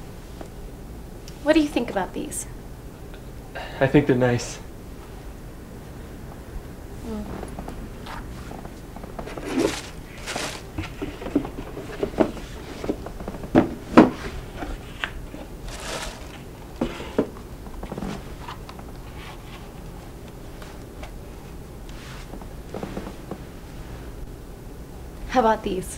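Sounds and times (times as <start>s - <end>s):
shoes rustling and scraping: 7.7s - 21.2s, 21.9s - 23.8s.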